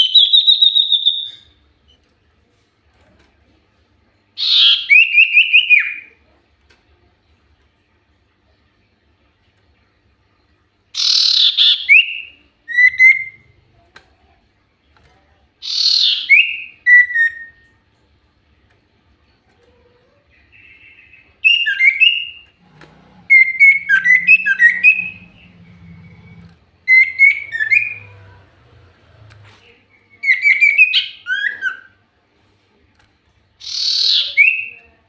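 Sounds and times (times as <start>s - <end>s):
bird harsh calls and whistles: 11.0s - 13.4s, 15.6s - 17.6s, 23.2s - 28.4s, 33.6s - 34.8s.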